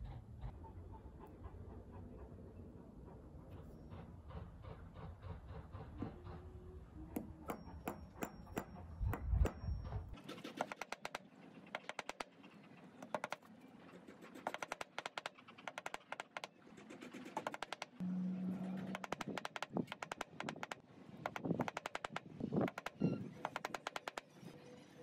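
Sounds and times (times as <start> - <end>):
engraving pen scratching metal: 14.4 - 16.5.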